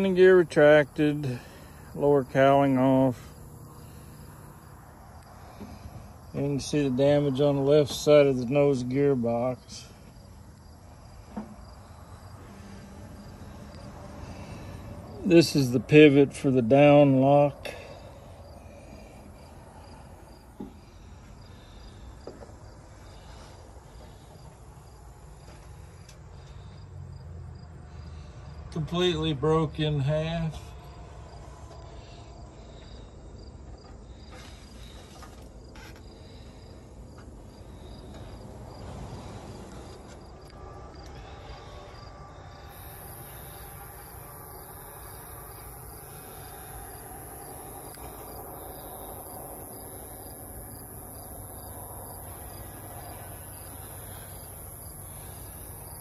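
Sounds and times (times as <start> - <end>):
insects chirping: 0.0 - 16.2, 16.8 - 29.2, 30.2 - 56.0
high-pitched steady hiss: 42.5 - 56.0.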